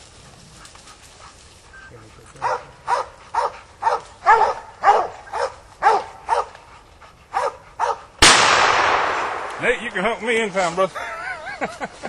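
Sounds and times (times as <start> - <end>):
dogs barking: 1.9 - 8.2
gunshot with echo: 8.2 - 10.4.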